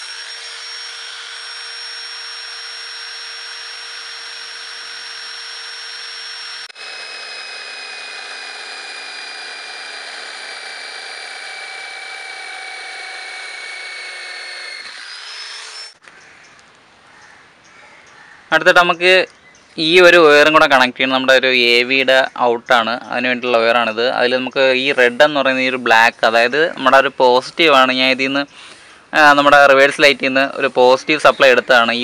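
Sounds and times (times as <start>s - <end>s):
electric drill whining: 0.0s - 16.0s.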